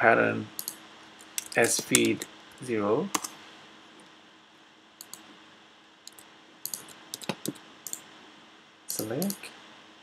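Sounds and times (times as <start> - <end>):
keyboard keystrokes: 6.1 - 8.0
mouse clicks: 6.1 - 8.0.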